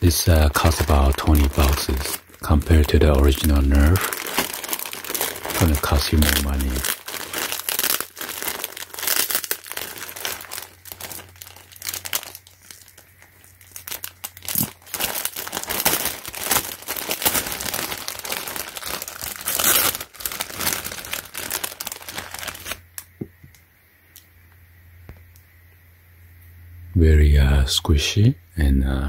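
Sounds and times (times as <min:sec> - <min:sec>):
plastic bag crinkling: 0:00.0 - 0:23.1.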